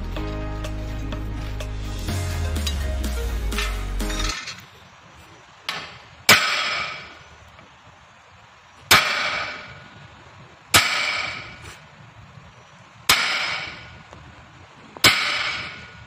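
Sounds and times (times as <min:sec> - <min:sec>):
hammer striking steel punch: 0:05.7 - 0:07.2, 0:08.9 - 0:09.8, 0:10.8 - 0:11.6, 0:13.1 - 0:14.0, 0:15.0 - 0:16.0.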